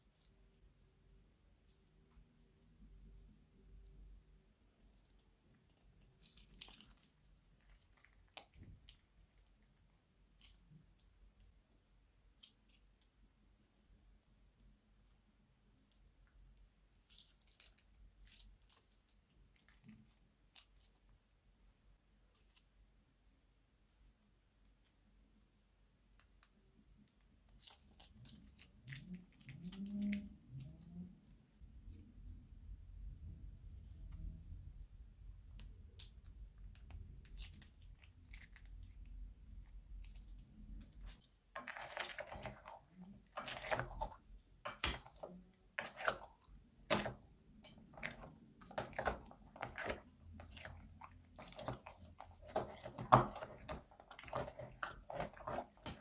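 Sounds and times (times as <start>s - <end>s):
low slime squelches: 23.8s - 56.0s.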